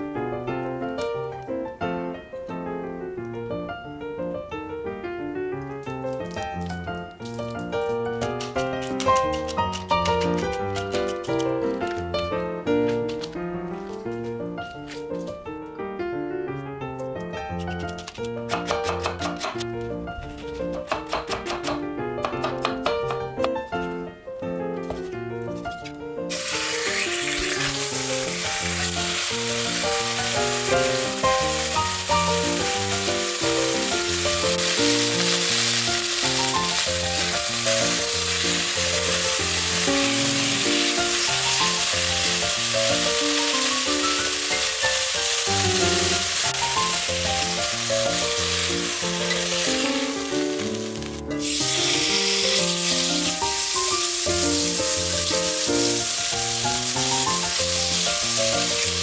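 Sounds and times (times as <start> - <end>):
background music: 0.0 - 59.0
bacon frying: 5.9 - 13.4, 26.3 - 59.0
steaks sizzling in oil: 26.3 - 59.0.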